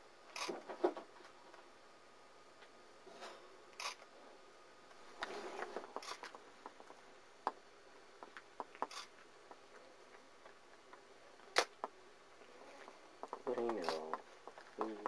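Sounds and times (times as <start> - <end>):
small clicks and ticks: 12.8 - 15.0.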